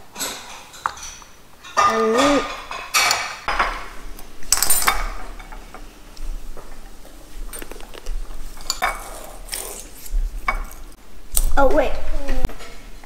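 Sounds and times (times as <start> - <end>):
cutlery clinking on ceramic bowl: 0.2 - 3.8, 8.6 - 9.2.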